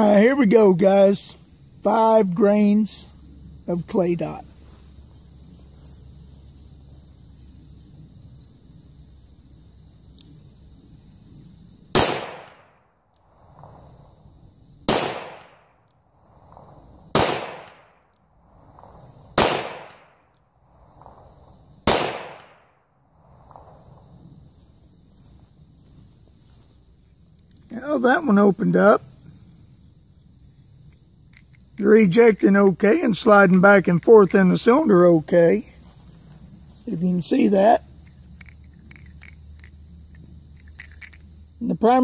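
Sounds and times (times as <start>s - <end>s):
revolver gunshots: 11.9s - 12.8s, 14.8s - 15.8s, 16.5s - 18.0s, 19.4s - 20.2s, 21.8s - 22.7s.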